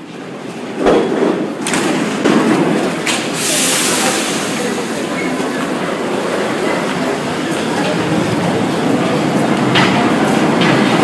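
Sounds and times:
train clunks: 0:00.4 - 0:11.0
loud hiss of air: 0:03.2 - 0:05.2.

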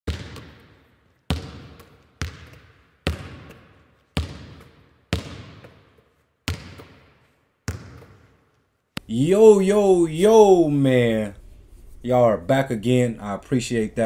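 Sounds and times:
basketball bouncing on hard floor: 0:00.1 - 0:08.4.

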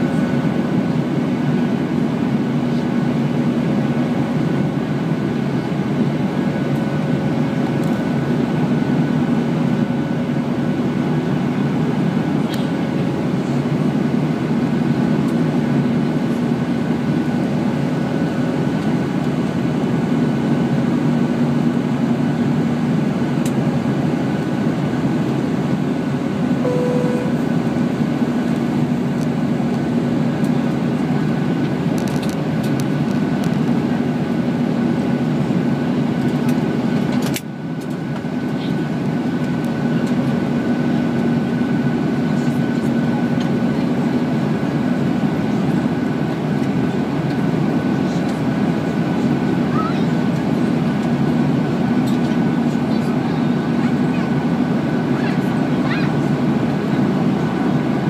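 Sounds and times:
airplane cabin drone: 0:00.0 - 0:58.0
constant hum: 0:00.0 - 0:58.0.

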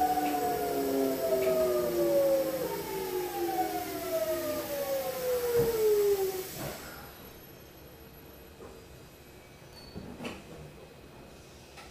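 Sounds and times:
train motors whining: 0:00.0 - 0:07.1.

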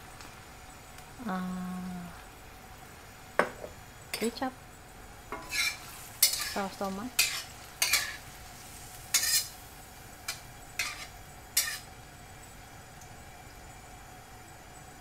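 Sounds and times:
sauce sizzling: 0:00.0 - 0:15.0
metal ladle scraping a wok: 0:05.3 - 0:09.6, 0:10.3 - 0:11.9.

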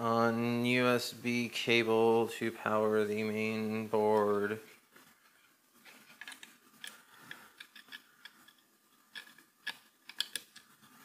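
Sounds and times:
wires and connectors rustling: 0:04.0 - 0:11.0.

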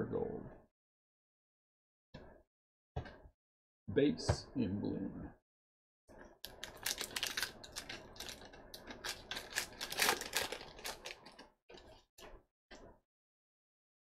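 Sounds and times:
plastic wrapper crinkling: 0:06.4 - 0:12.0.

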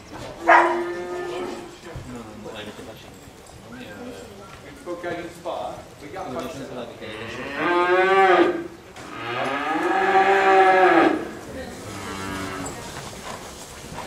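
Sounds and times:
cattle mooing: 0:07.2 - 0:12.8.

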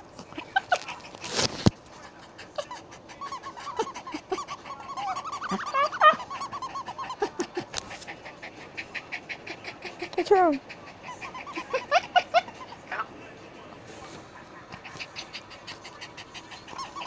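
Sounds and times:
squeaky toy squeaks: 0:03.2 - 0:07.4, 0:16.6 - 0:17.0.

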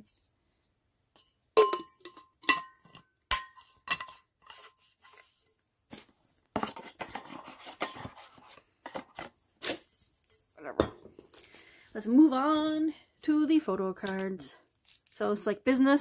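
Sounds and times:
metal tumbler and lid clinking: 0:01.2 - 0:05.3
cardboard box rustling: 0:05.9 - 0:09.3.

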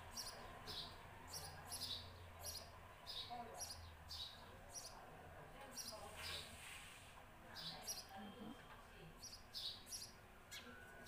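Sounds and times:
small bird chirping: 0:00.0 - 0:05.0, 0:07.5 - 0:11.0.

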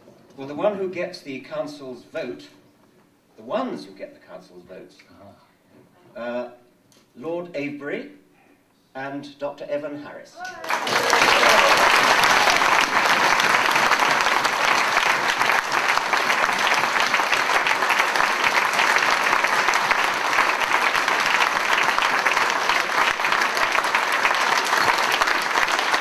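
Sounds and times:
audience applauding: 0:10.4 - 0:26.0.

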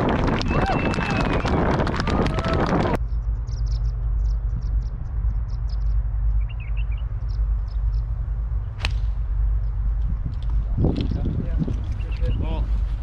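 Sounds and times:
wind buffeting microphone: 0:00.0 - 0:06.0, 0:09.2 - 0:13.0
small birds chirping: 0:03.0 - 0:08.8, 0:10.8 - 0:12.8
golf club striking ball: 0:08.8 - 0:09.2.

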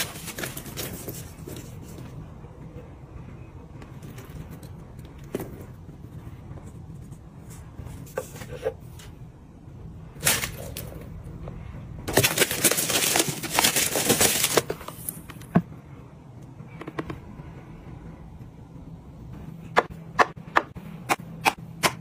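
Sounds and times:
packaging crinkling and rustling: 0:12.1 - 0:15.2.

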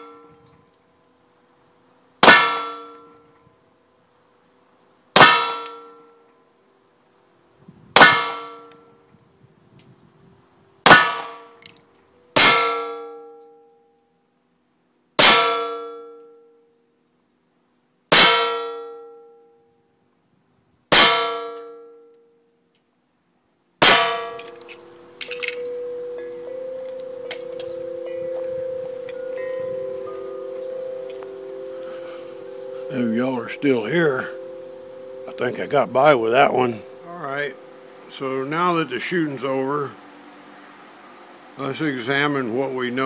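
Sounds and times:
metal bullet trap clanging: 0:23.8 - 0:27.8.

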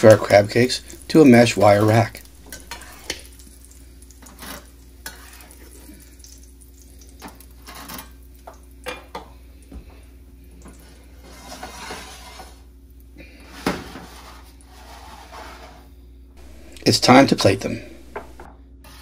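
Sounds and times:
metal spatula scraping skillet: 0:00.2 - 0:03.3, 0:04.2 - 0:05.6, 0:11.2 - 0:12.7, 0:13.4 - 0:16.8.

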